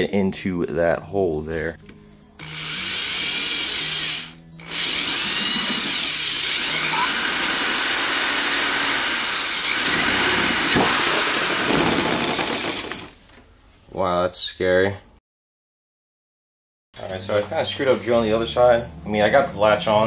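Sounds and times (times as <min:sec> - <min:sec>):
power drill boring through plastic: 0:02.4 - 0:13.2.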